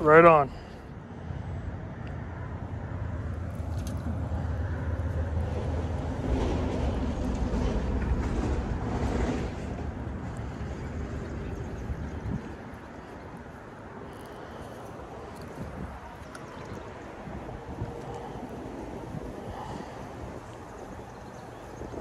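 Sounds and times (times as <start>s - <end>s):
wind noise on microphone: 3.8s - 22.0s.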